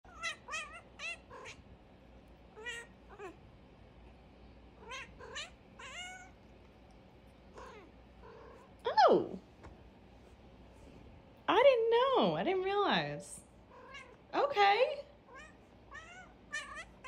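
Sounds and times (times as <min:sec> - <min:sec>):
cat meowing: 0:00.1 - 0:01.6, 0:04.8 - 0:06.4, 0:07.5 - 0:08.7, 0:13.7 - 0:14.2, 0:15.3 - 0:17.0.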